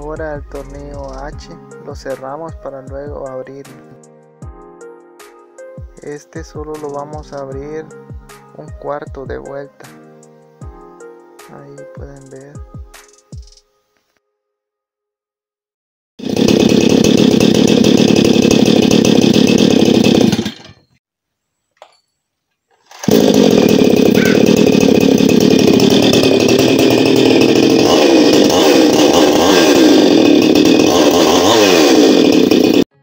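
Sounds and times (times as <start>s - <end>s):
chainsaw running: 0.6s - 1.3s, 6.0s - 7.8s, 16.2s - 21.0s, 22.8s - 32.9s.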